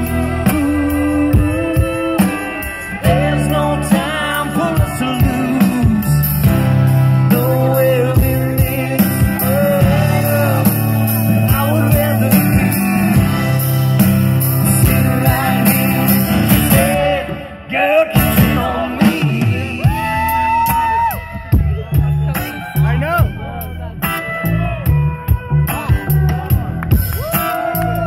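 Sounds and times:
live rock band playing: 0:00.0 - 0:28.0.

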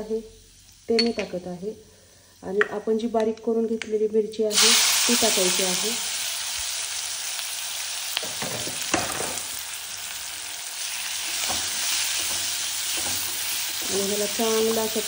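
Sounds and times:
vegetables sizzling in hot oil: 0:00.0 - 0:03.0, 0:04.4 - 0:15.0
spatula scraping and stirring: 0:11.1 - 0:14.8.

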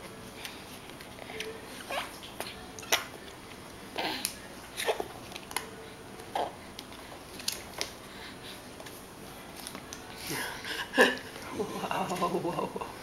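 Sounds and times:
baby grunting: 0:04.0 - 0:05.1.

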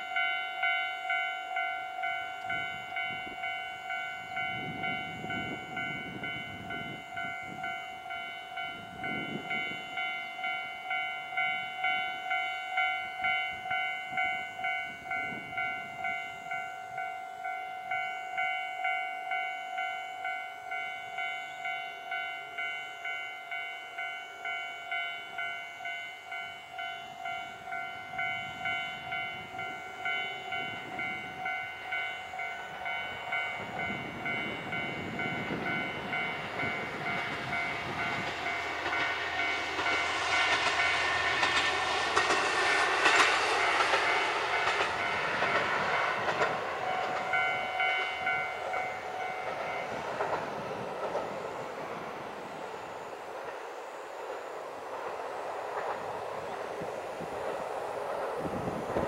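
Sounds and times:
level crossing warning bell: 0:00.0 - 0:54.6
diesel train passing: 0:00.0 - 0:59.0.

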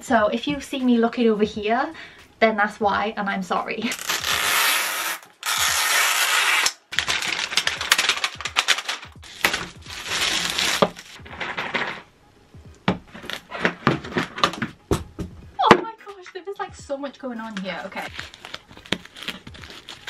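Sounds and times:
plastic film crinkling and tearing: 0:03.9 - 0:12.0, 0:13.1 - 0:14.7, 0:17.4 - 0:20.0
plastic shell cracking: 0:06.6 - 0:12.1, 0:12.9 - 0:14.9, 0:17.5 - 0:20.0.

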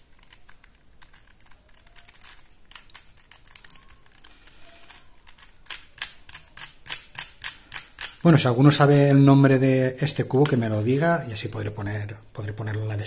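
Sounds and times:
puzzle cube clicking: 0:00.0 - 0:08.5.

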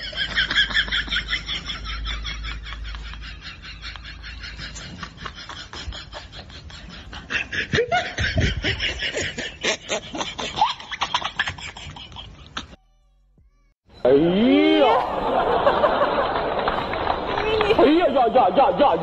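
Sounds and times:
person snickering and laughing: 0:00.0 - 0:12.8.

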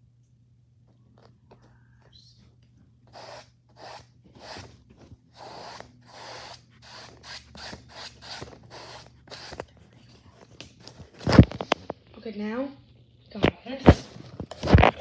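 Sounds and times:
paintbrush scrubbing: 0:03.1 - 0:10.5.

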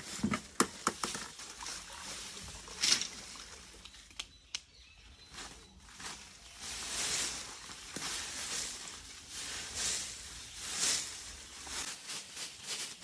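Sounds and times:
twig broom swish: 0:05.4 - 0:13.0.

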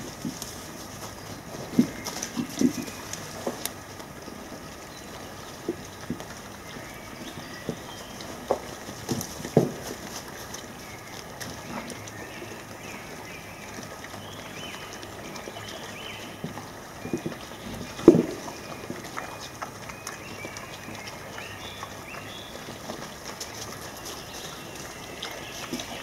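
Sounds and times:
rustling in leaf litter: 0:00.0 - 0:13.8
wild boar grunting: 0:00.0 - 0:26.0.

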